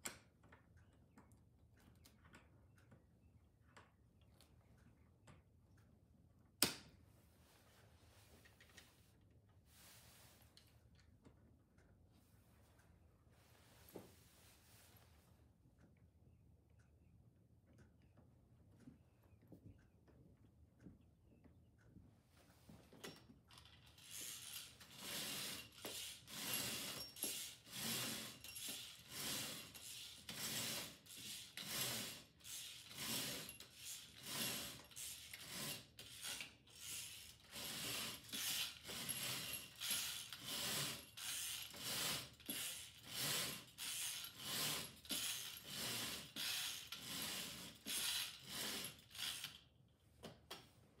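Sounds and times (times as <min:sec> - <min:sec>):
bead chain ratcheting: 0:23.5 - 0:49.6.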